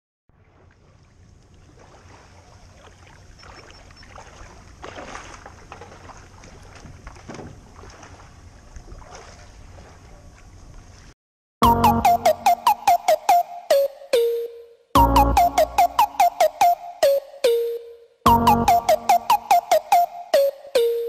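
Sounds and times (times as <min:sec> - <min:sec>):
water splashes: 0:00.3 - 0:11.1
waves lapping against kayak hull: 0:00.3 - 0:11.1.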